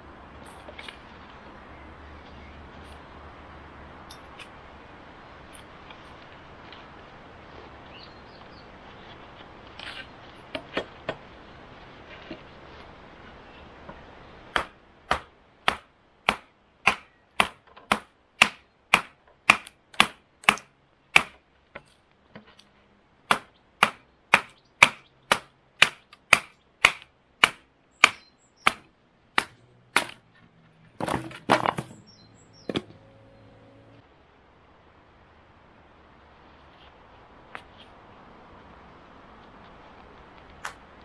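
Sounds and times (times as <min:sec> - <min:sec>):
knife chopping wood: 0:14.6 - 0:21.4, 0:23.3 - 0:30.2
wood clattering: 0:29.4 - 0:32.1.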